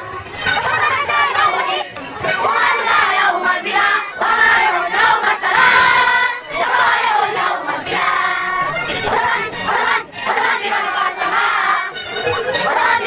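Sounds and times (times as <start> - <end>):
children singing in unison: 0.0 - 13.0.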